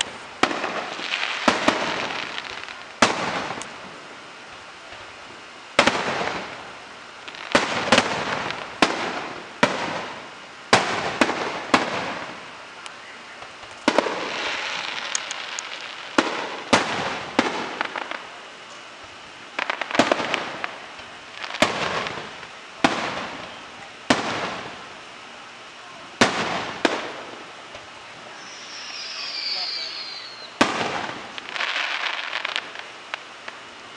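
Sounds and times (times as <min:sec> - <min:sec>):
firework crackle and hiss: 0:00.0 - 0:33.9
firework shells bursting: 0:13.4 - 0:18.3, 0:26.2 - 0:33.7.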